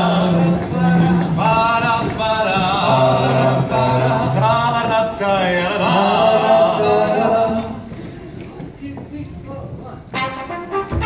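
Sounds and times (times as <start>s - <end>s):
group singing in harmony: 0.0s - 7.9s.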